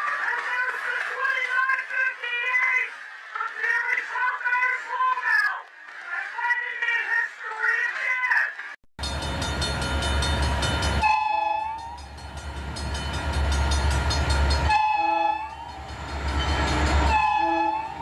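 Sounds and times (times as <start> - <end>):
locomotive air horn blasts: 10.7 - 12.4, 14.3 - 18.0.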